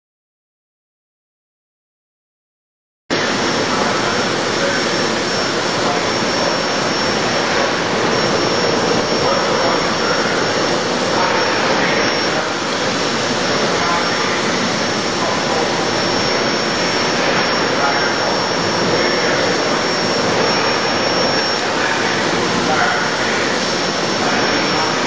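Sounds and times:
blower rushing with high whine: 3.1s - 25.0s.

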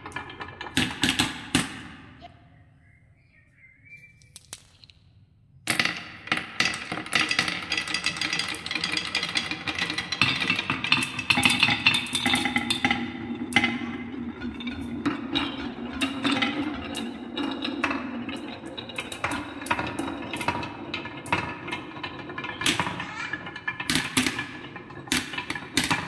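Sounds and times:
marbles rolling on wooden run: 5.7s - 26.0s.

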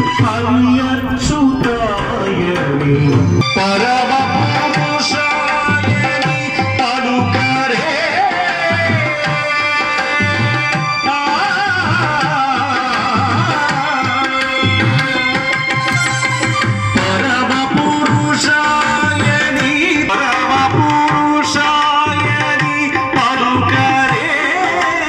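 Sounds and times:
person singing: 0.0s - 25.0s
tabla playing: 0.0s - 25.0s
electronic keyboard chords: 12.5s - 25.0s.

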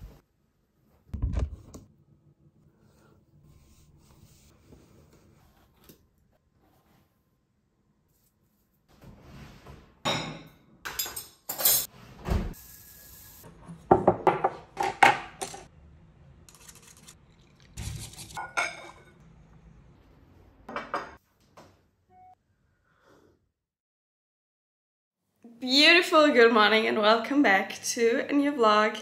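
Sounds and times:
cups and utensils clinking: 18.4s - 19.2s.

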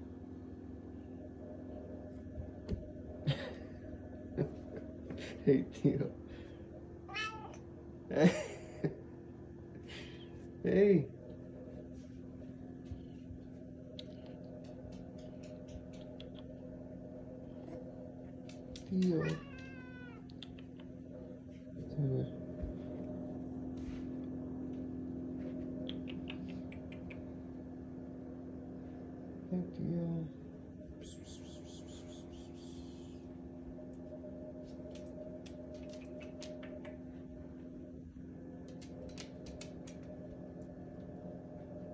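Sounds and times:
low hum: 0.0s - 41.9s
cat claws tapping on floor: 14.0s - 16.6s, 38.7s - 40.2s.

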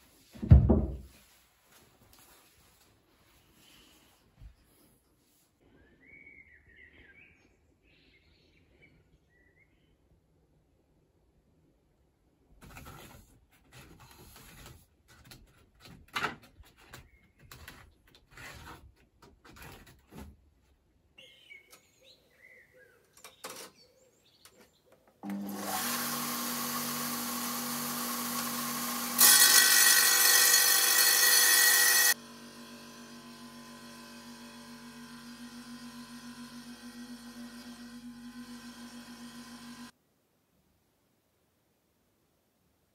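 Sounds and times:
saw blade cutting: 25.2s - 39.9s
table saw motor whining: 25.2s - 39.9s.

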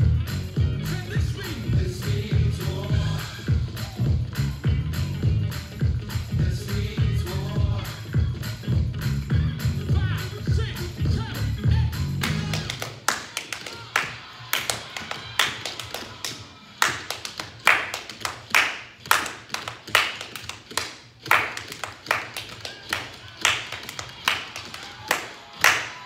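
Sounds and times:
faint music: 0.0s - 26.0s
person clapping hands: 12.2s - 26.0s.

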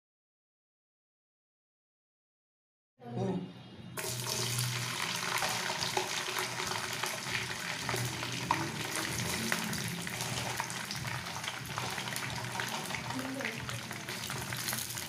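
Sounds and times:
potato sticks sizzling in oil: 4.0s - 15.0s.

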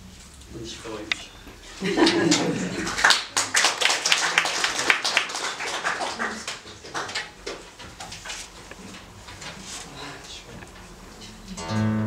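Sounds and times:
audience applause: 2.0s - 7.6s.

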